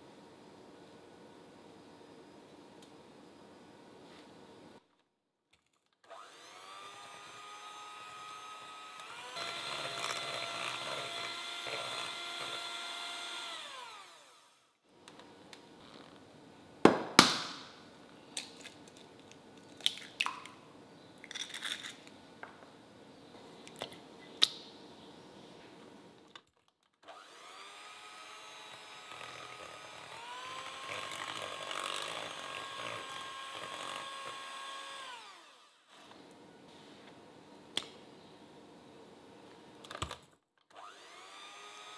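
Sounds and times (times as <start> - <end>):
electric hand mixer whining: 6.1 - 14.6, 27.1 - 36.0, 40.8 - 41.9.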